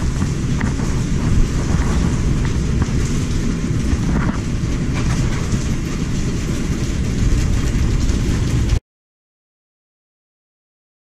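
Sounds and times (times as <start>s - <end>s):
heavy rain hiss: 0.0s - 8.8s
storm wind buffeting microphone: 0.0s - 8.8s.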